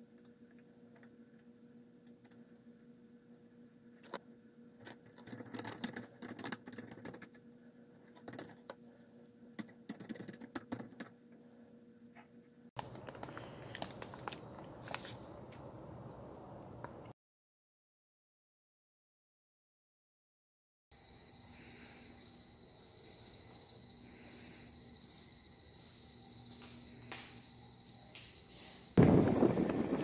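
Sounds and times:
steady electrical hum: 0:00.0 - 0:17.1, 0:21.0 - 0:30.0
typing on computer keyboard: 0:04.8 - 0:07.4, 0:08.0 - 0:08.8, 0:09.6 - 0:11.1.

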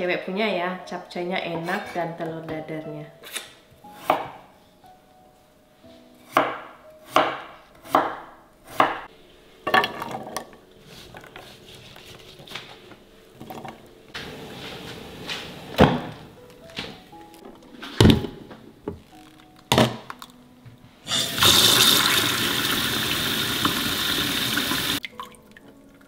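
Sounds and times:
knife chopping on wooden board: 0:04.0 - 0:04.4, 0:06.3 - 0:09.0.

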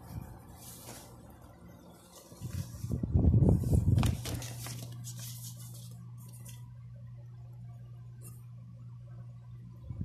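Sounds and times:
paper insert rustling: 0:00.0 - 0:06.7
steady low hum: 0:00.0 - 0:10.0.

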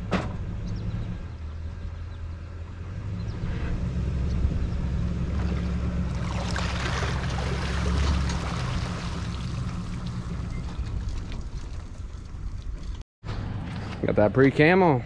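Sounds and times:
engine running at low revs: 0:00.0 - 0:14.1
churning splashing water: 0:05.2 - 0:13.0.

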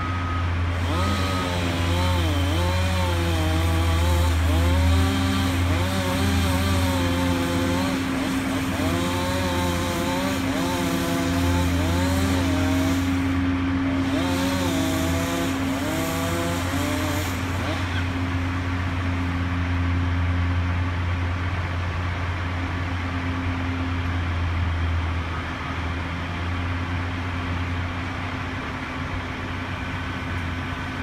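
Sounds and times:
low engine hum: 0:00.0 - 0:31.0
chainsaw cutting: 0:00.7 - 0:19.3.

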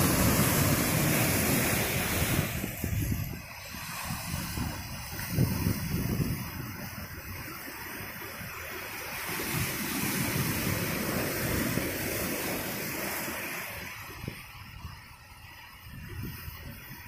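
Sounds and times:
surf breaking on rocky shore: 0:00.0 - 0:17.0.

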